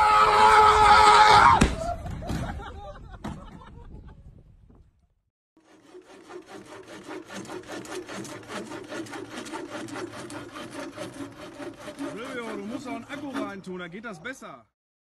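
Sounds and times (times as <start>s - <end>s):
rhythmic scraping strokes: 5.6s - 13.8s.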